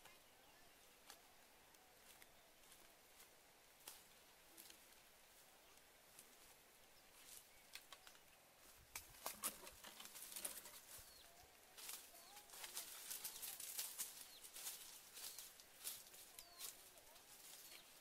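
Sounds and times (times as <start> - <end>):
branches rustling and crackling: 0.0 - 18.0
barefoot steps through dry leaves: 8.6 - 18.0.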